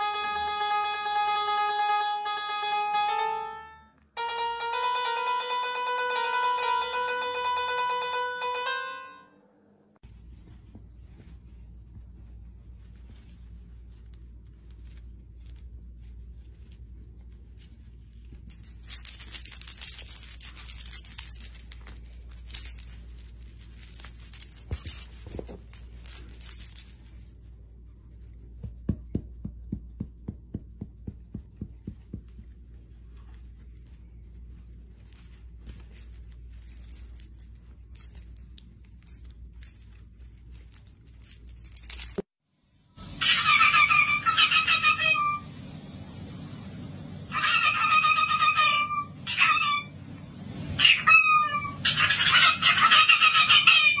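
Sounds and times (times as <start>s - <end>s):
toy ball jingling and rattling: 17.5s - 28.6s, 33.1s - 42.3s.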